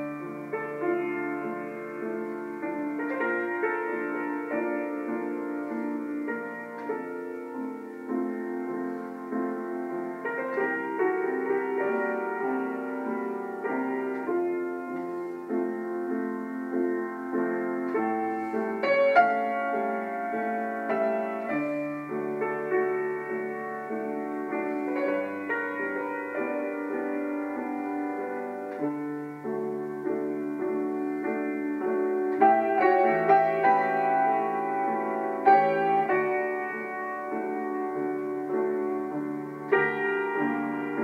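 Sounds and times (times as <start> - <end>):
slow piano music: 0.0 - 41.0.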